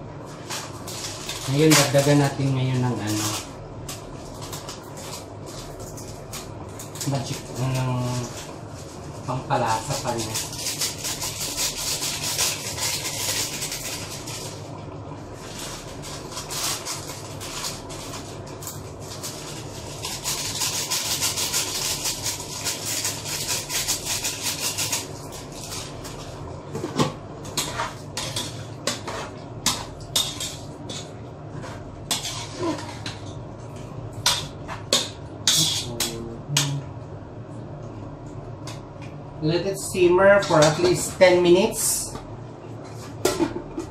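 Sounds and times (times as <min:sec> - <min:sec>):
metal utensil scraping pot: 0:27.6 - 0:33.2.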